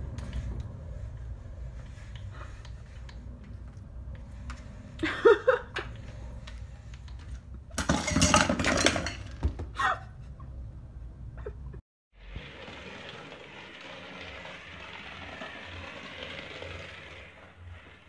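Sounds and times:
metal bowls clattering: 7.7 - 9.4.

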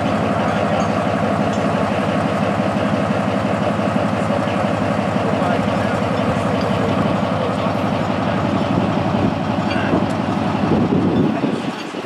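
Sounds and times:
crane engine rumbling: 0.0 - 12.0.

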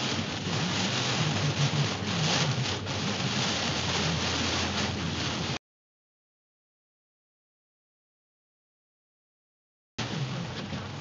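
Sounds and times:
heavy rain on car windshield: 0.0 - 5.6, 10.0 - 11.0.

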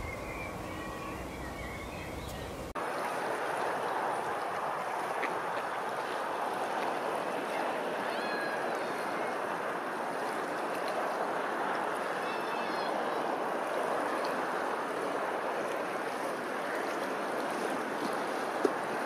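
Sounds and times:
bird chirps: 0.0 - 2.6
rushing water: 0.0 - 19.0.

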